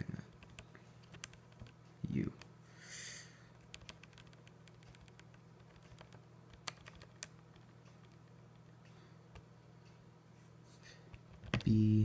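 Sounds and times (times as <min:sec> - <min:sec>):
faint low hum: 0:00.0 - 0:12.0
calculator keys clicking: 0:00.3 - 0:01.8, 0:03.6 - 0:08.7, 0:11.1 - 0:11.7.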